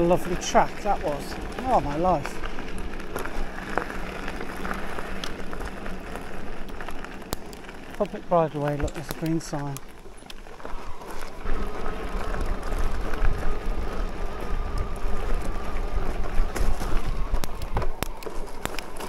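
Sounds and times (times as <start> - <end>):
faint electric motor whine: 0.0 - 19.0
wind buffeting microphone: 10.7 - 19.0.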